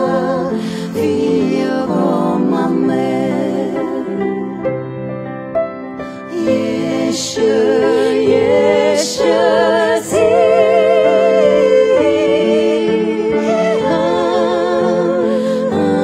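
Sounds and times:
person singing with vibrato: 6.2s - 16.0s.

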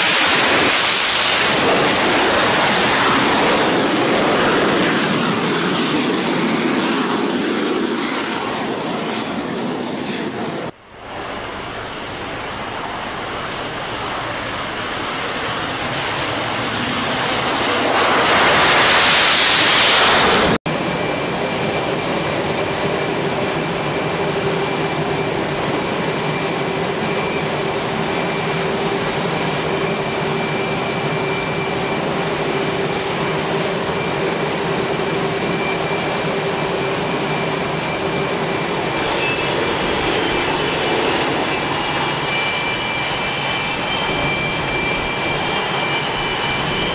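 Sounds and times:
jet aircraft rushing: 0.0s - 46.9s
jet engines running: 0.0s - 46.9s
high whistle: 35.3s - 46.9s.

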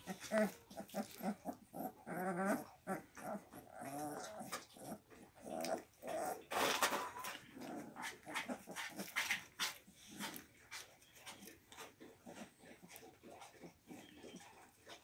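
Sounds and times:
puppies whimpering: 0.0s - 9.1s, 12.2s - 15.0s.

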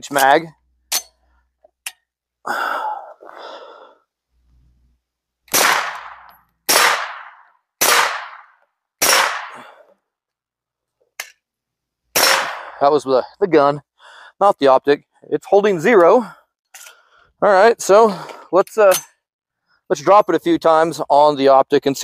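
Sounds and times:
suppressed pistol shots: 5.5s - 9.7s, 12.2s - 12.8s.

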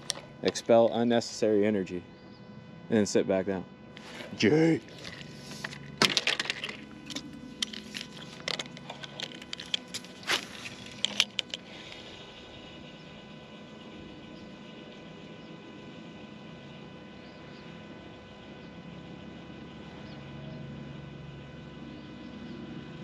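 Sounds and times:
fishing reel clicks and taps: 6.5s - 12.0s.

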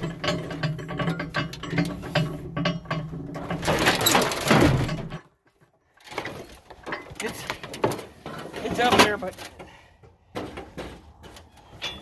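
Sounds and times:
metallic clicking and rattling: 0.0s - 5.4s.

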